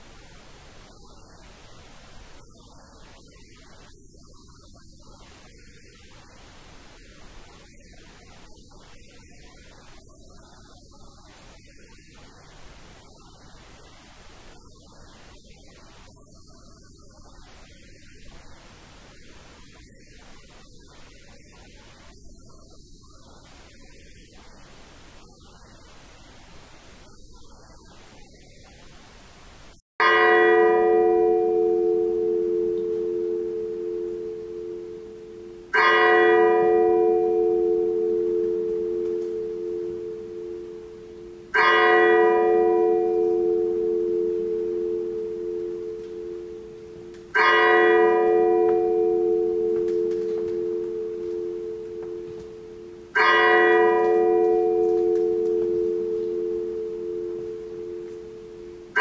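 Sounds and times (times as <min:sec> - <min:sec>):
large bell tolling: 0:30.0 - 0:59.0.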